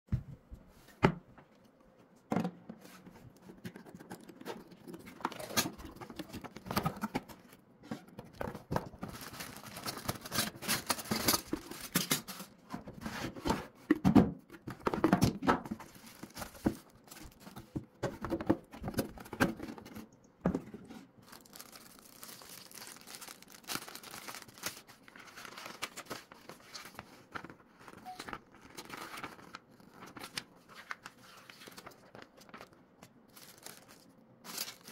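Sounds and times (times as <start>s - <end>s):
cardboard packaging being opened: 3.4s - 13.0s, 14.7s - 20.0s, 21.2s - 34.9s
plastic bags crinkling: 8.2s - 12.5s, 21.2s - 34.9s
paper sheets rustling: 21.2s - 34.9s.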